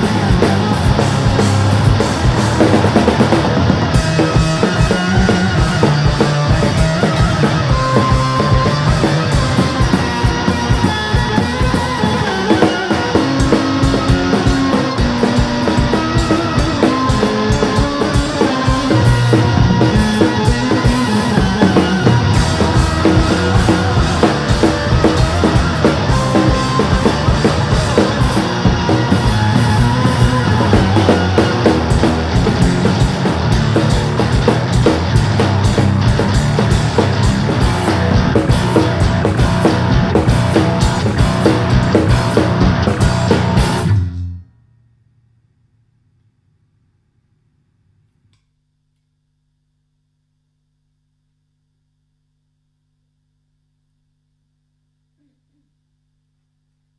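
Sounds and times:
drum kit beat: 0:00.0 - 0:44.2
electric guitar: 0:00.0 - 0:44.6.

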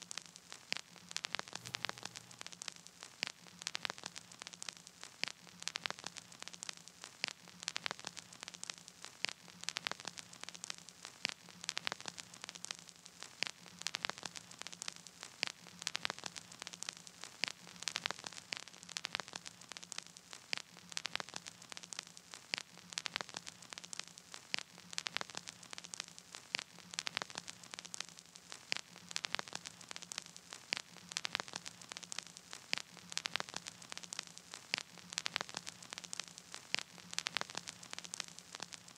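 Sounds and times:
crackling static: 0:00.0 - 0:38.9
faint low hum: 0:01.6 - 0:02.7.

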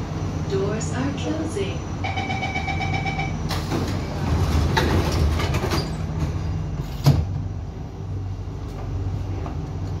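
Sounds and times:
train hum: 0:00.0 - 0:10.0
door warning beeps: 0:02.0 - 0:03.6
train doors sliding shut: 0:03.4 - 0:07.7.

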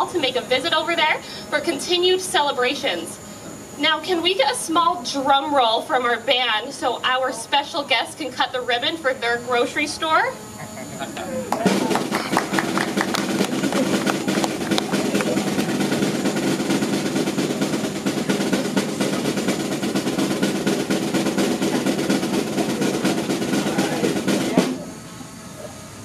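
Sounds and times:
drum roll: 0:11.5 - 0:25.0.

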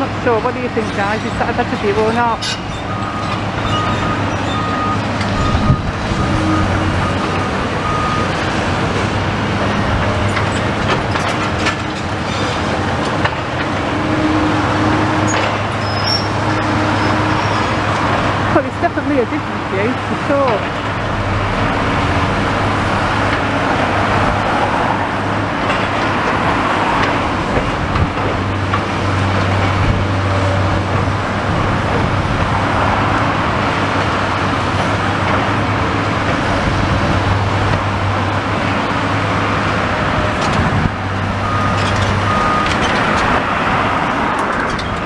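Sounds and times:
road traffic noise: 0:00.0 - 0:45.0.

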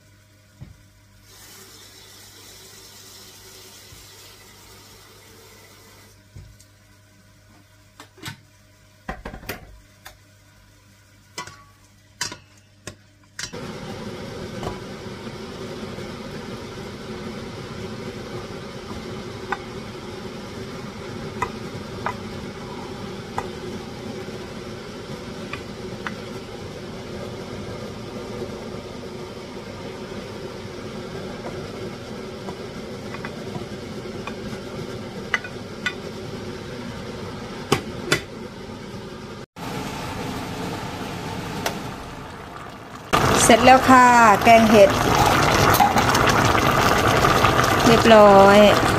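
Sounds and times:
pot of curry boiling: 0:39.6 - 0:48.9.

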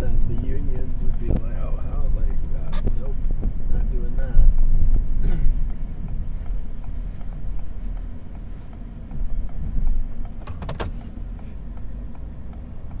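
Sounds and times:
pickup truck rumble from inside: 0:00.0 - 0:13.0
sharp clicks or rattles: 0:10.2 - 0:11.0.

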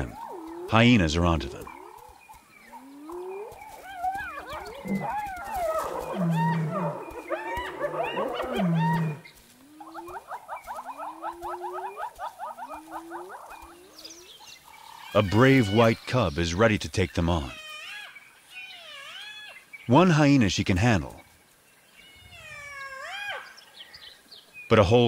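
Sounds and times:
hyenas squealing and groaning: 0:00.0 - 0:16.0, 0:22.0 - 0:23.6.

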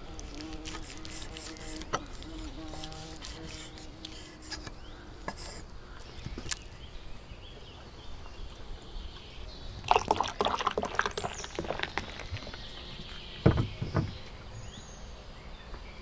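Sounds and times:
beer glugging and splashing into glass: 0:09.8 - 0:12.4.

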